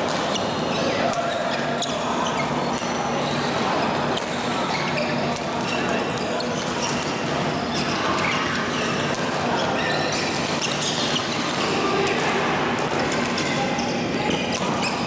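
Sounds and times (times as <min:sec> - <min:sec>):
rackets hitting shuttlecocks: 0:00.0 - 0:00.3, 0:09.1 - 0:13.6
shoe squeaks on court floor: 0:00.1 - 0:11.8, 0:13.1 - 0:15.0.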